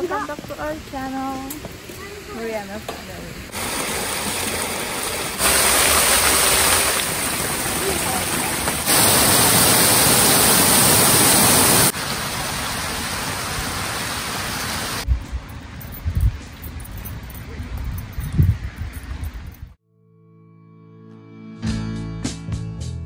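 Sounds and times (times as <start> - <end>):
fountain water splashing: 2.0 - 15.0.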